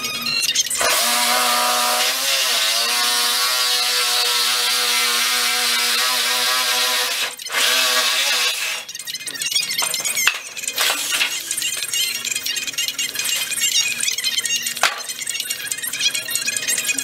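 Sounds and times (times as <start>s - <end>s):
reciprocating saw cutting panel: 0.7s - 12.4s.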